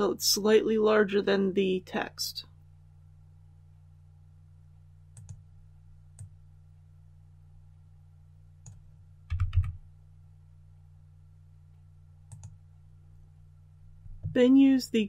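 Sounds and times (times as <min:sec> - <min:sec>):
computer mouse clicks: 0:05.1 - 0:05.4, 0:08.6 - 0:09.8, 0:12.3 - 0:12.6.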